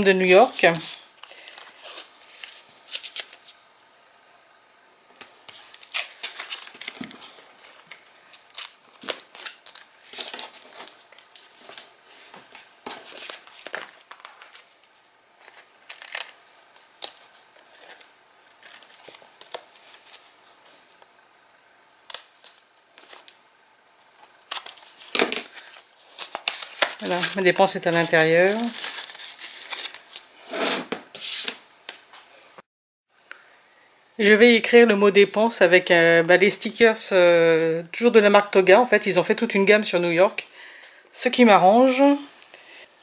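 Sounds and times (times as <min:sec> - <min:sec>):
tape rustling and peeling: 0:00.2 - 0:03.9, 0:05.1 - 0:21.1, 0:22.0 - 0:23.4, 0:24.0 - 0:32.1.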